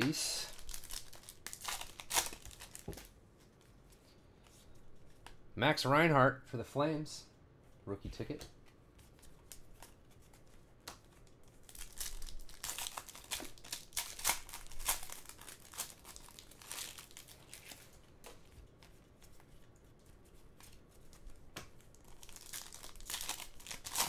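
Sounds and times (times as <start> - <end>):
foil wrapper crinkling and tearing: 0.0 - 3.1, 11.2 - 18.1, 21.8 - 24.0.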